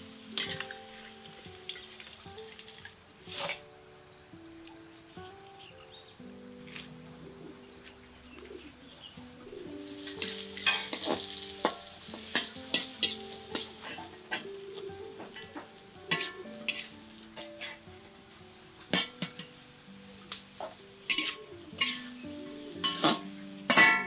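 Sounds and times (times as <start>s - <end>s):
oil sizzling in a wok: 0.0s - 3.6s, 9.6s - 24.0s
acoustic guitar music: 0.0s - 24.0s
metal spatula scraping and clanking: 0.4s - 0.8s, 3.2s - 3.7s, 10.1s - 14.5s, 15.3s - 17.8s, 20.6s - 22.1s, 22.8s - 24.0s.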